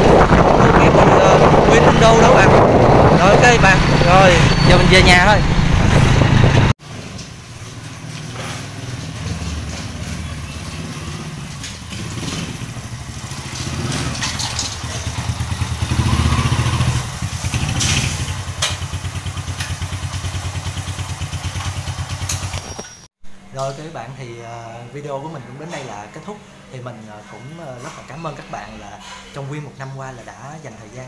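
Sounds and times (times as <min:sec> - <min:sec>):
motorcycle engine idling: 0:14.8 - 0:17.7, 0:18.3 - 0:22.6.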